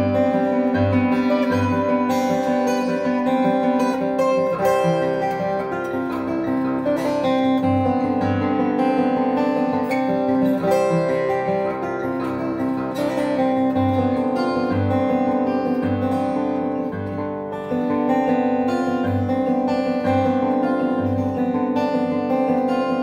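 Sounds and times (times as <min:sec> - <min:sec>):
fingerpicked acoustic guitar: 0:00.0 - 0:23.0.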